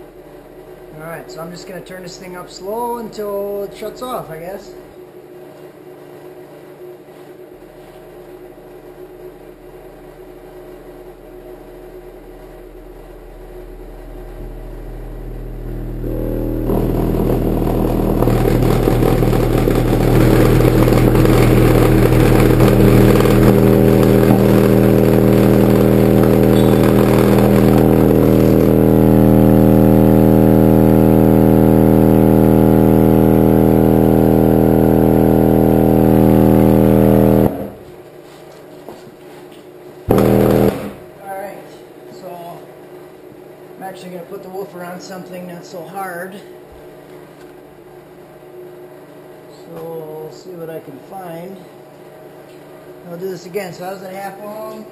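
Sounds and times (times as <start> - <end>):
subwoofer low test tone drone: 9.5 - 38.0, 40.1 - 41.2.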